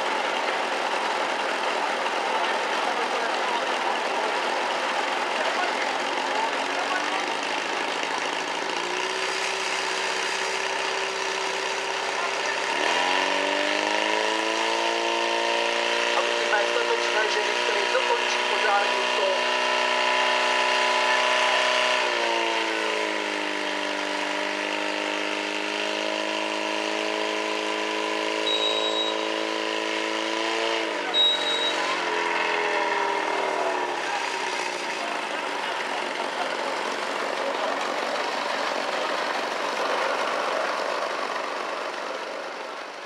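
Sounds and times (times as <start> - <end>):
pump engine running: 0.0 - 43.0
short high beeps: 28.4 - 29.3, 31.1 - 32.0.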